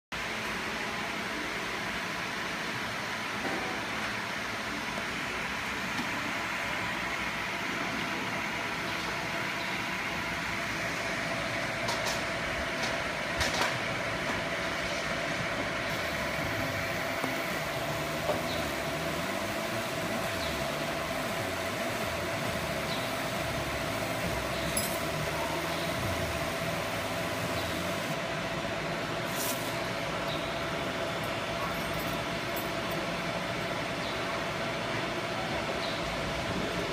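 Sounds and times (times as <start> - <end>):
fan humming: 0.2 - 36.9
laser machine whine: 15.9 - 28.2.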